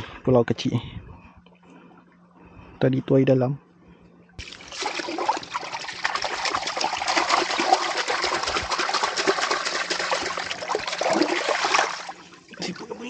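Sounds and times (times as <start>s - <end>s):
water splashing and trickling: 4.4s - 13.0s.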